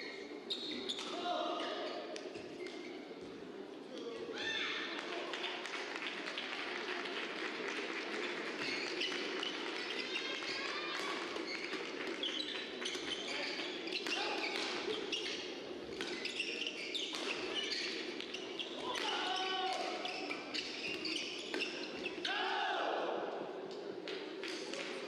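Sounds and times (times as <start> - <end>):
shoes squeaking on court: 0.0 - 3.4, 8.6 - 22.3
murmur of hall: 0.0 - 25.0.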